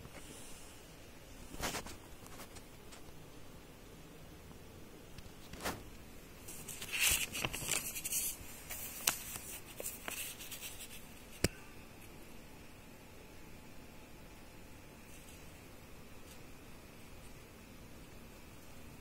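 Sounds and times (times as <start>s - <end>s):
paper pages rustling: 1.5s - 3.1s, 6.4s - 11.5s.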